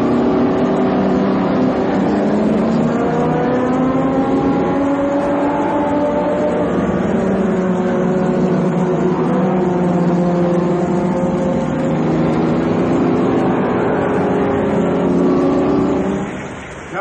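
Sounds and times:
racing car engines at speed: 0.0 - 17.0.

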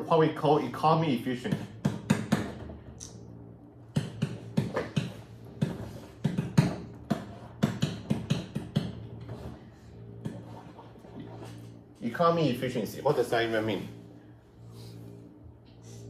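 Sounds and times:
faint low hum: 0.0 - 16.0
marker scratching on whiteboard: 4.0 - 11.7.

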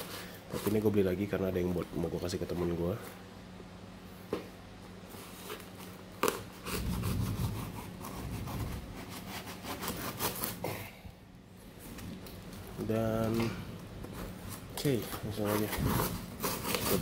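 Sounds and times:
knife slicing tape and cardboard: 5.4 - 10.7, 14.9 - 17.0.

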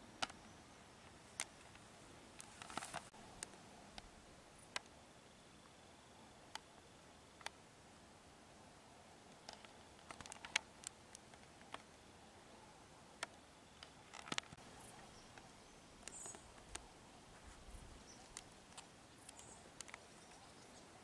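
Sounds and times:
faint sharp clicks and ticks: 9.3 - 12.0, 13.1 - 21.0.

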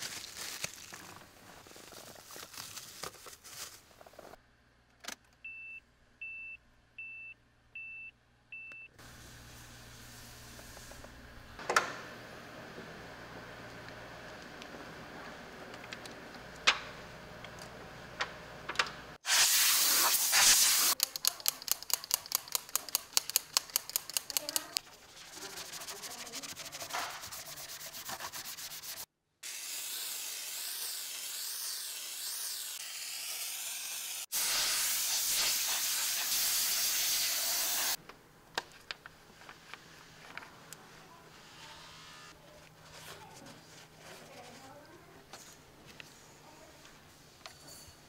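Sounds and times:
spray hissing: 19.2 - 21.0, 25.4 - 38.0
brush scrubbing foamy cleaner: 24.8 - 29.1, 33.3 - 38.0.

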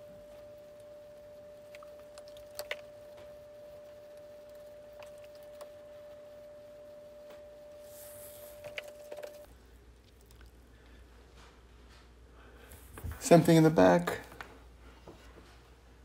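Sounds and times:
faint steady tone: 0.0 - 15.6
cloth wiping ceramic bowl: 0.1 - 9.1.

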